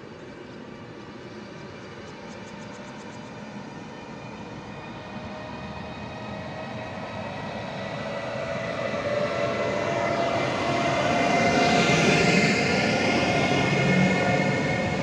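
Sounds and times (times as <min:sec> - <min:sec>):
electric locomotive whine: 0:00.0 - 0:15.0
train running noise: 0:00.0 - 0:15.0.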